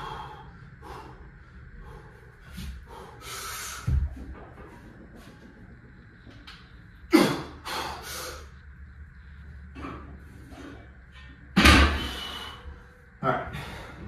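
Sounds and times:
man breathing hard: 0.0s - 4.3s, 6.8s - 9.6s, 11.9s - 14.0s.

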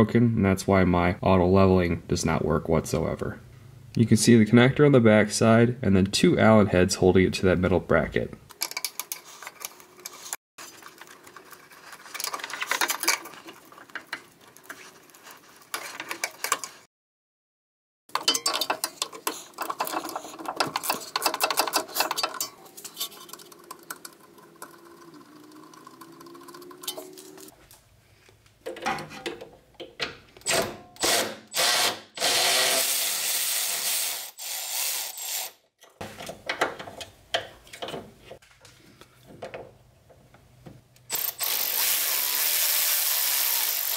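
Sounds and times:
power ratchet whirring: 30.5s - 35.6s, 41.1s - 43.9s
rapid ratchet clicking: 41.1s - 43.9s.

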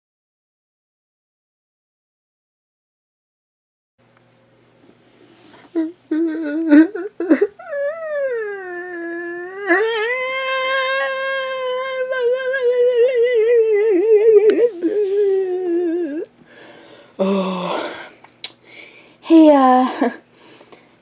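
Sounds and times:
person humming long note: 5.7s - 16.3s.

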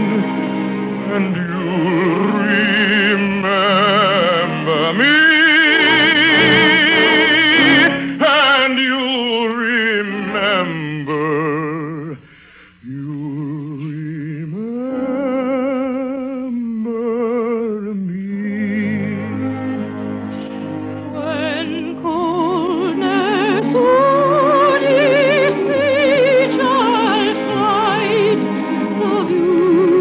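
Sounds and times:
musical accompaniment: 0.0s - 10.7s, 18.4s - 30.0s
operatic singing: 0.0s - 30.0s.

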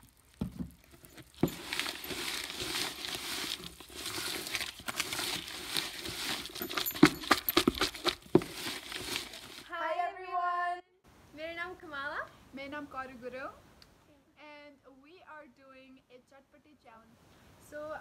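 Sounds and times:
spoon stirring wet food: 0.0s - 9.6s.

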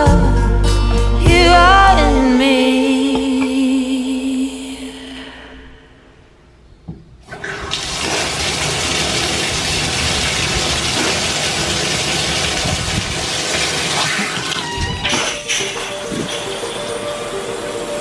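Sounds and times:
water pouring into bathtub: 7.3s - 16.7s.

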